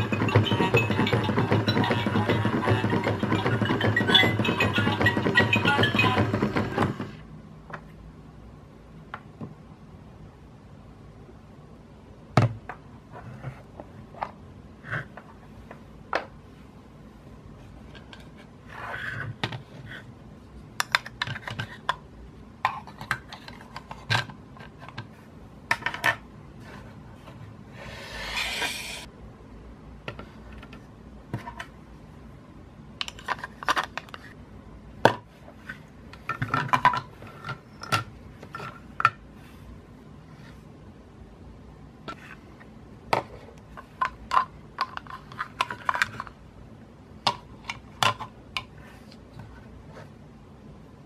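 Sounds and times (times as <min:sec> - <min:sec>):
plastic toys clicking and knocking: 0:00.0 - 0:07.2, 0:43.2 - 0:46.3.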